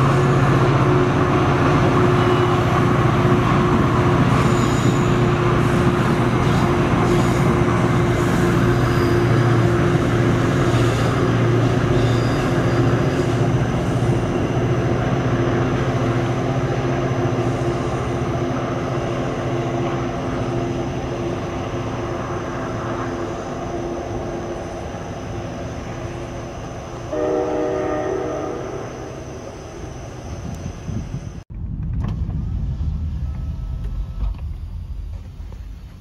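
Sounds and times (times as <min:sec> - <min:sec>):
diesel locomotive engine drone: 0:00.0 - 0:36.0
train horn: 0:27.1 - 0:29.3.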